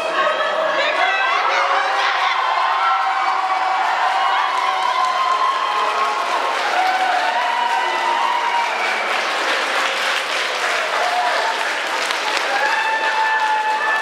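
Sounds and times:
crowd clapping: 2.0 - 14.0.

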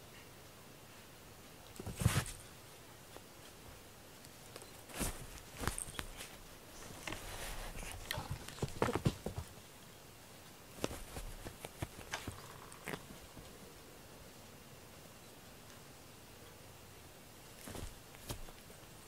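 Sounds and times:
cats moving on a blanket: 1.6 - 13.6, 17.4 - 19.0.

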